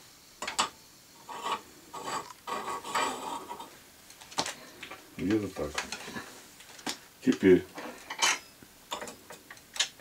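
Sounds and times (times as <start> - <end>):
metal scraping on block: 0.6 - 3.8.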